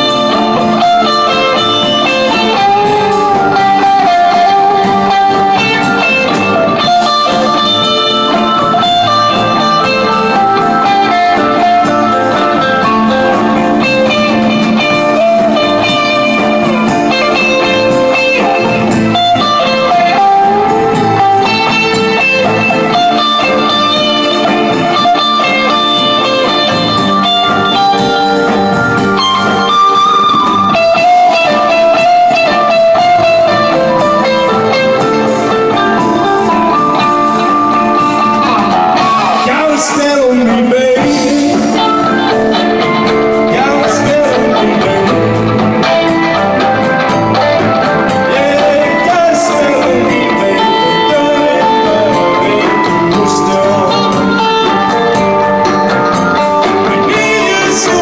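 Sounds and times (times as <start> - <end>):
bluesy electric guitar lead: 0.0 - 58.0.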